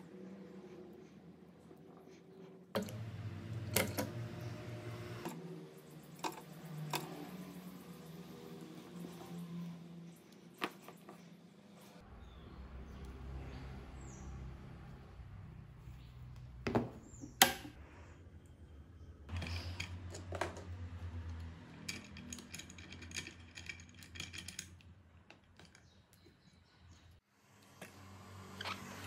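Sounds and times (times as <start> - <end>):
tools and parts handled on workbench: 1.6 - 12.0, 16.0 - 18.1, 19.2 - 27.2.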